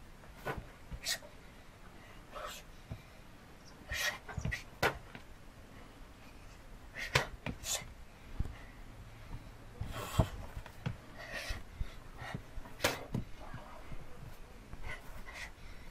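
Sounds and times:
bare feet thudding on rubber mat: 9.2 - 11.0.

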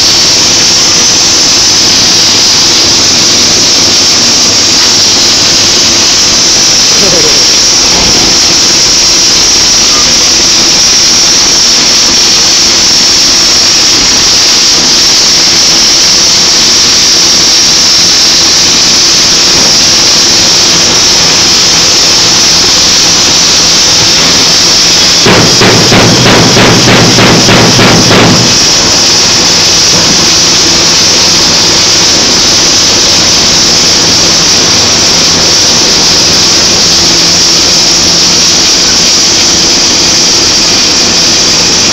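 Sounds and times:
low machinery hum: 0.0 - 41.9
welding arc hiss: 0.0 - 41.9
rapid knocking: 24.9 - 30.9.

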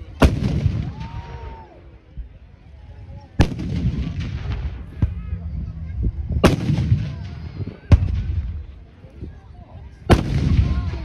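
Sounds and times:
low rumbling echo: 3.1 - 11.0.

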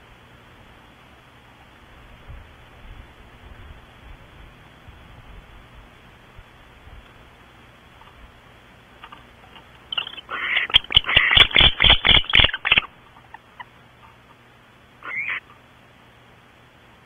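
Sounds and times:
owls screeching: 9.9 - 13.7, 15.0 - 15.5.

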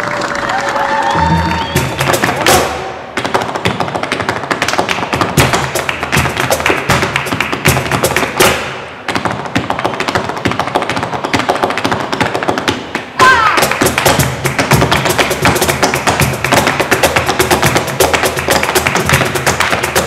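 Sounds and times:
cajon drum strikes: 1.2 - 3.8, 4.8 - 8.8, 13.5 - 20.0
dance footwork on wooden floor: 1.2 - 20.0
hand-clapping: 13.6 - 20.0.

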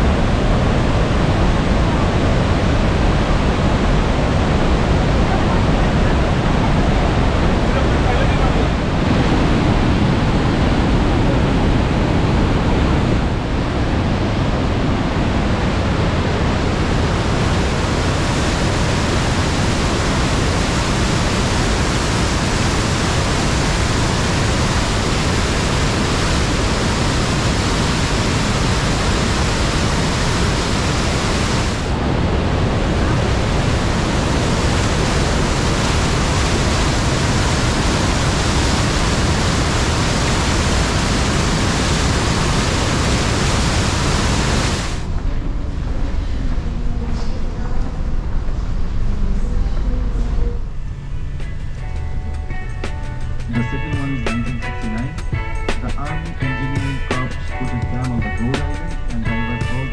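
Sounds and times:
waterfall rushing: 0.0 - 45.2.

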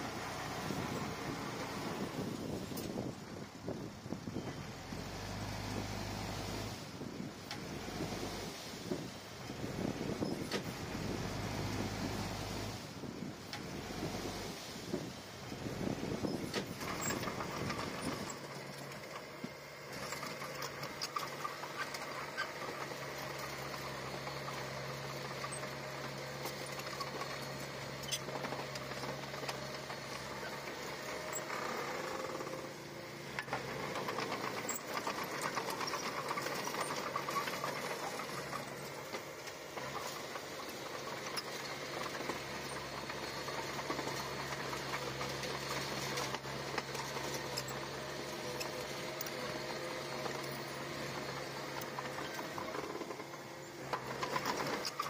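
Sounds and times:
bulldozer diesel engine running: 0.0 - 55.0.

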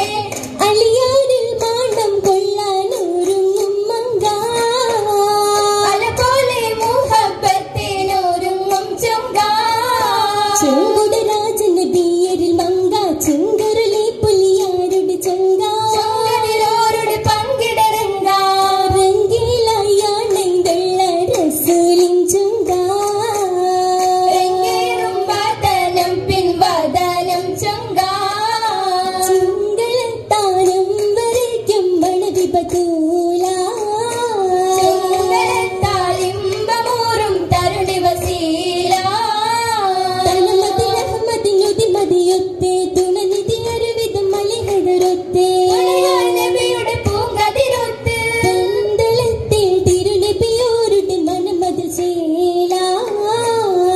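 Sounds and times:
hand claps: 0.0 - 7.6, 10.0 - 26.2, 29.2 - 39.1, 40.2 - 47.8
girls singing: 0.0 - 53.9.

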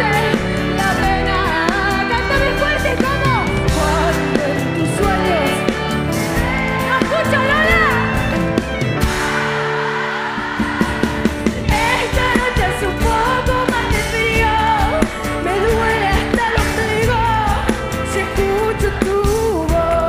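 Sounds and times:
woman singing: 0.0 - 8.2, 11.6 - 20.0
live pop band playing: 0.0 - 20.0
drum beat: 10.4 - 20.0.

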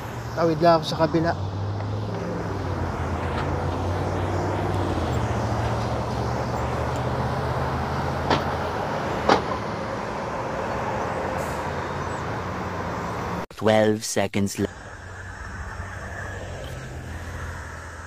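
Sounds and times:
bus engine humming: 0.0 - 13.4, 14.7 - 18.0
cars passing: 0.0 - 13.5, 14.6 - 18.0
sharp knocks: 8.2 - 8.6, 9.2 - 9.7.

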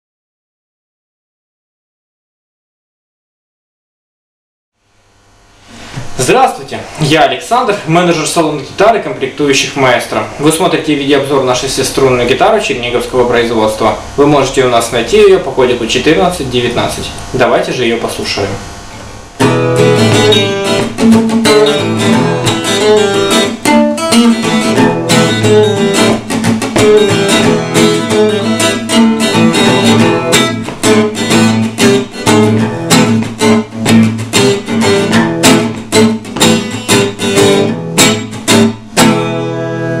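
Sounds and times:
guitar strummed chords: 11.3 - 40.0.

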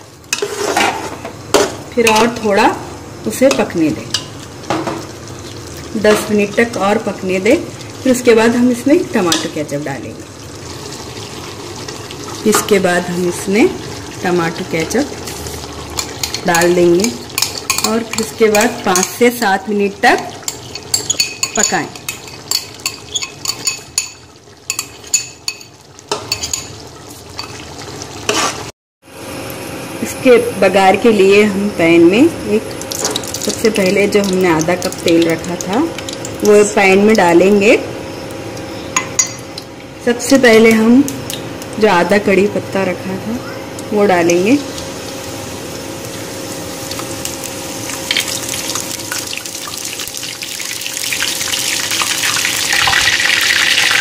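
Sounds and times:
leaves sizzling in hot oil: 0.0 - 54.0
metal spoon clinking on ceramic: 20.5 - 25.7, 26.3 - 26.7.

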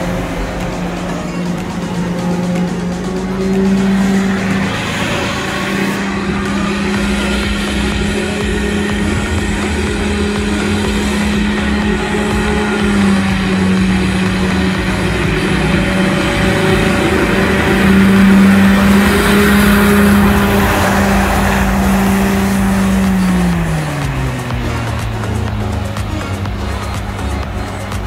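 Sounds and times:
small vehicle motor running: 0.0 - 28.0.

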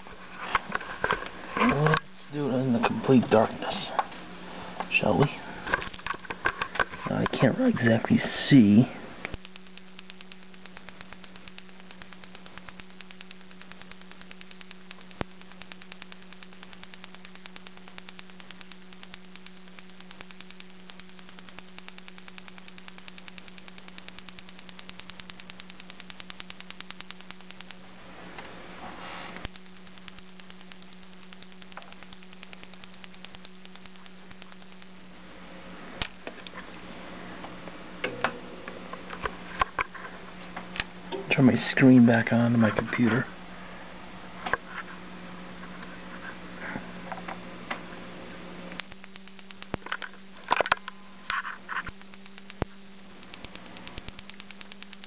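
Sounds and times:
steady low hum: 0.0 - 55.0
grill igniter clicking: 37.4 - 41.4.

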